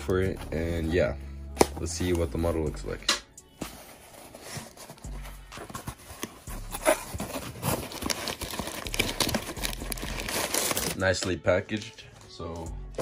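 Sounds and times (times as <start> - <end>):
packing paper rustling: 3.5 - 12.4.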